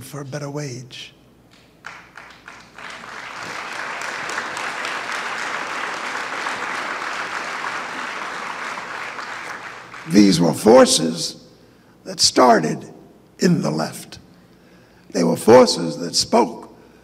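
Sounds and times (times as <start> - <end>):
audience applause: 1.8 - 10.2.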